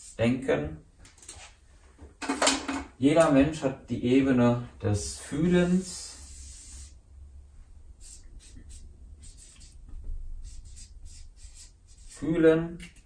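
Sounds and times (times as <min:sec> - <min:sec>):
marker squeaking on paper: 0:08.0 - 0:09.8, 0:10.4 - 0:12.3.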